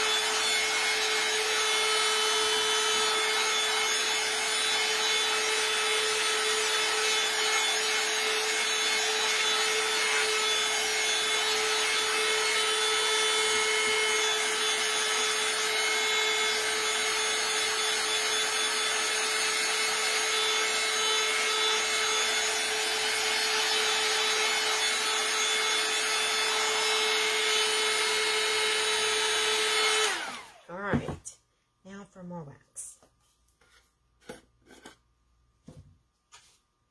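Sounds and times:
heat gun blowing: 0:00.0 - 0:16.0.

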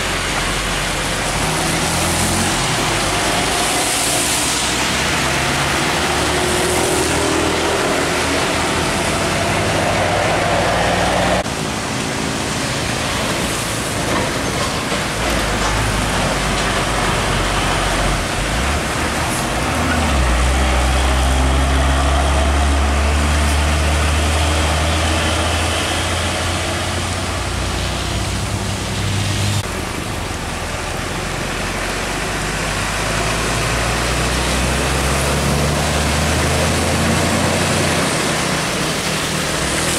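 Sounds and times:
diesel truck engine drone: 0:00.0 - 0:39.9
tyre hiss on wet road: 0:00.0 - 0:39.9
motorcycles passing: 0:00.8 - 0:13.0.

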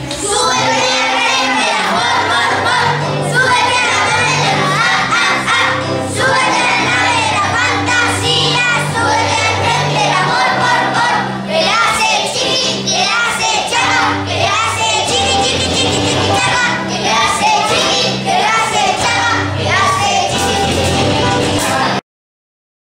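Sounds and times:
voices singing: 0:00.0 - 0:22.0
steady bass line: 0:13.8 - 0:22.0.

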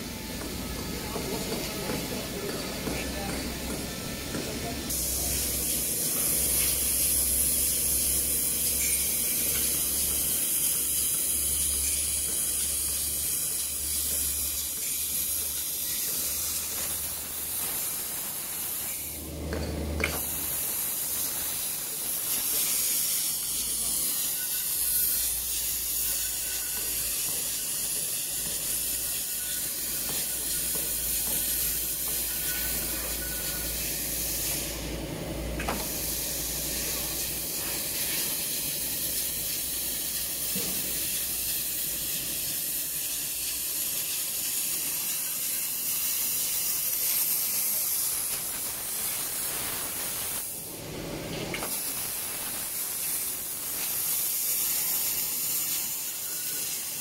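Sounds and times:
machine cutting tools scraping metal: 0:00.4 - 0:19.2, 0:20.0 - 0:34.9, 0:51.6 - 0:57.0.

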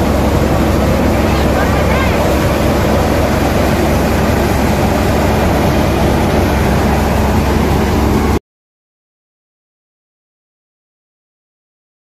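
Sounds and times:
thresher machine droning: 0:00.0 - 0:08.4.

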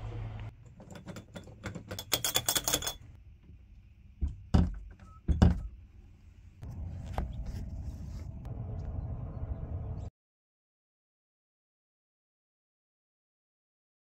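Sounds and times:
steady low rumble: 0:05.9 - 0:10.1.

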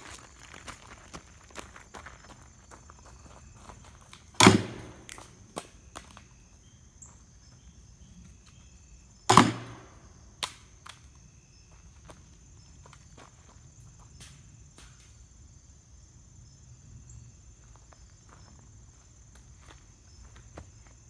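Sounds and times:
gunshots: 0:04.4 - 0:05.2, 0:09.3 - 0:10.0.

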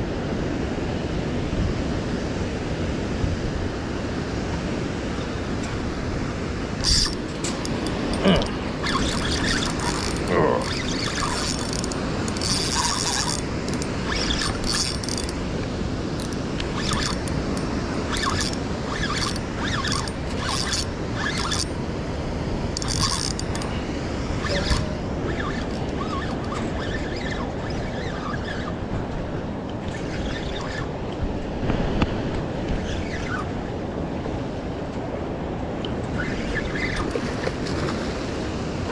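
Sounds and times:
whitewater rushing: 0:04.6 - 0:31.8
clicks and scrapes near microphone: 0:06.8 - 0:15.4, 0:24.4 - 0:29.2.

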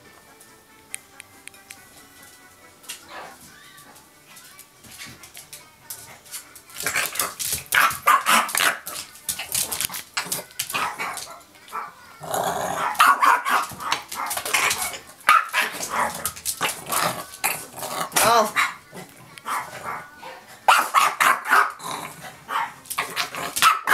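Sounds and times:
small dog barking: 0:12.8 - 0:14.3, 0:20.7 - 0:21.8, 0:23.6 - 0:23.9.

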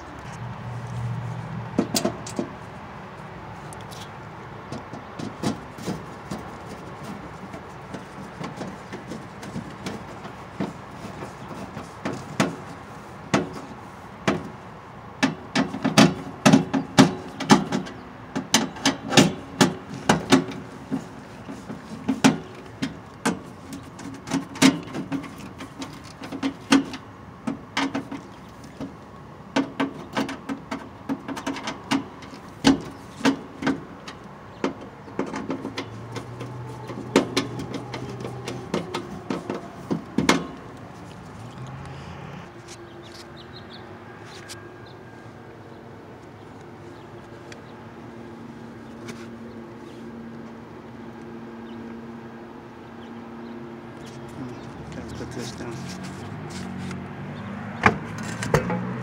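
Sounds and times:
sharp metal clicks and knocks: 0:01.8 - 0:02.5, 0:29.6 - 0:41.8.

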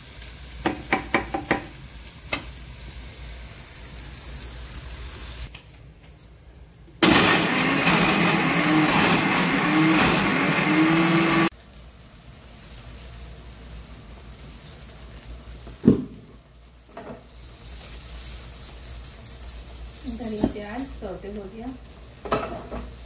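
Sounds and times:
mixer grinder motor whine: 0:07.0 - 0:11.5.

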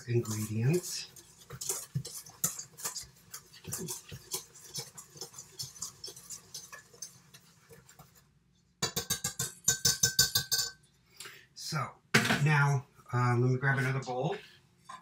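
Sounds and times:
whisk ticking against bowl: 0:00.0 - 0:10.8.

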